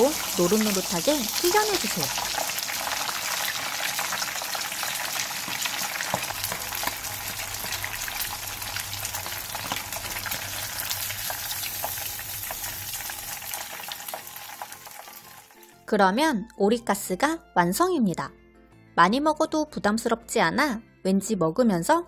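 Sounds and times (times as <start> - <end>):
cutlet sizzling in hot oil: 0.0 - 15.8.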